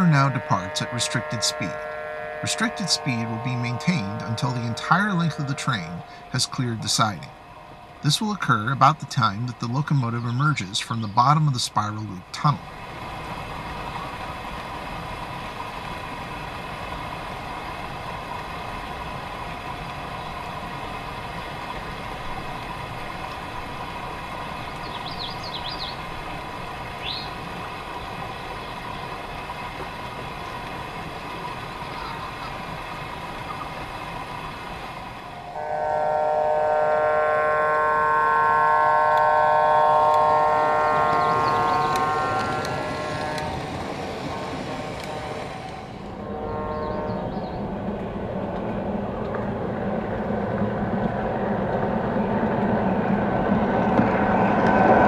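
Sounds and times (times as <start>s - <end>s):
diesel air horn: 0.0s - 7.4s, 35.3s - 47.6s
model train hum and rumble: 0.0s - 55.0s.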